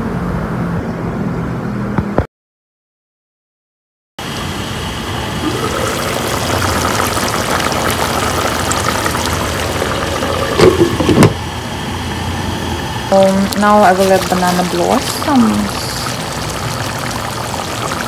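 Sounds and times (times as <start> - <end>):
stew bubbling in a pot: 4.4 - 11.4, 13.1 - 18.0
glass pot lid clanking: 10.4 - 11.4.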